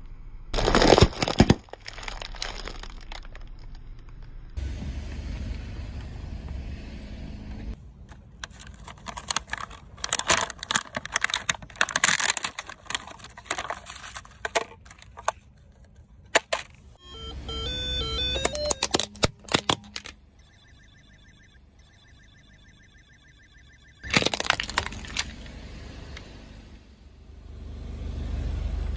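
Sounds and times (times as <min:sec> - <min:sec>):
plastic packaging crinkling: 0:00.6 - 0:04.1, 0:08.1 - 0:15.4, 0:24.0 - 0:25.3
car engine rumbling: 0:02.9 - 0:28.9
electronic game beeps: 0:17.0 - 0:24.1.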